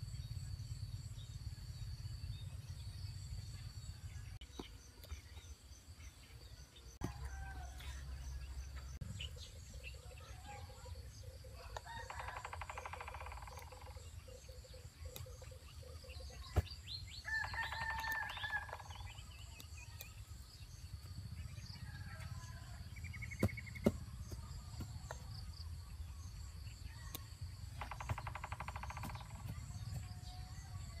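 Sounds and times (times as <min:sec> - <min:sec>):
birds trilling and chirping: 0:00.0 - 0:31.0.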